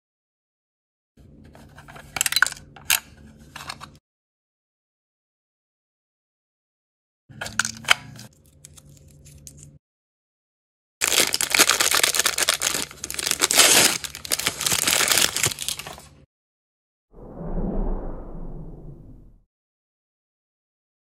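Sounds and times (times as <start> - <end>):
paper wrapping tearing: 11.0 - 16.1.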